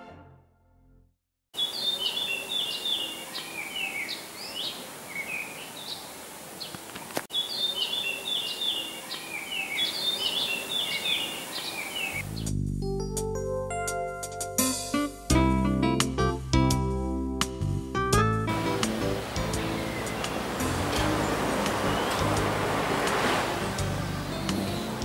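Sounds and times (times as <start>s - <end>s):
music: 0.0s - 1.2s, 12.2s - 25.0s
steady background hiss: 1.6s - 12.2s, 18.6s - 25.0s
songbird chirping: 1.6s - 12.6s, 18.5s - 25.0s.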